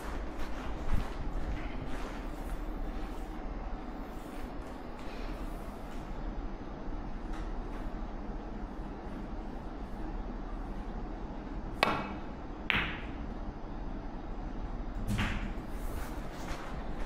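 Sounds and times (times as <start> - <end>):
cue tip striking ball: 11.8 - 13.2
snooker balls clacking: 11.8 - 13.2.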